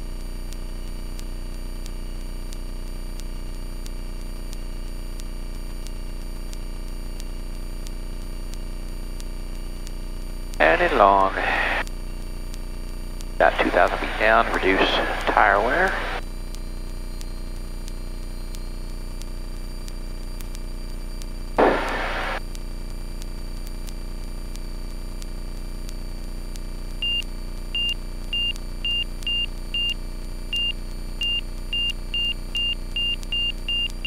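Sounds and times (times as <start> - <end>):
loud burst of noise: 10.6 - 11.8, 21.6 - 22.4.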